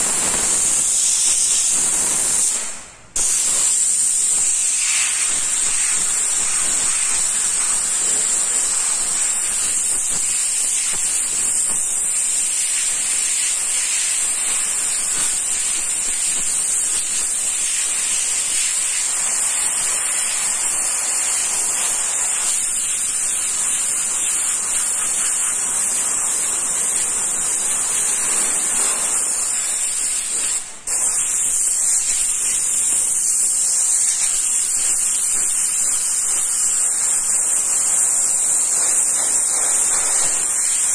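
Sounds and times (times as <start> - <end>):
airbrush hissing: 0.0 - 40.9.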